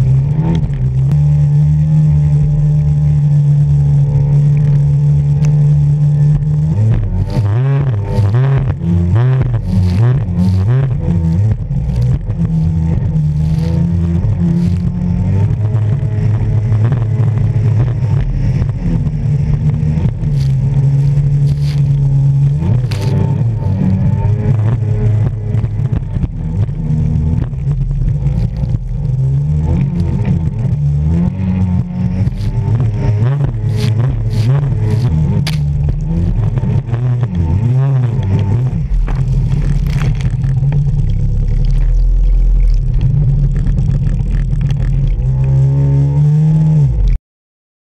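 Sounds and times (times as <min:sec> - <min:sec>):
jet ski engine running: 0:00.0 - 0:47.2
water rushing: 0:38.2 - 0:45.4.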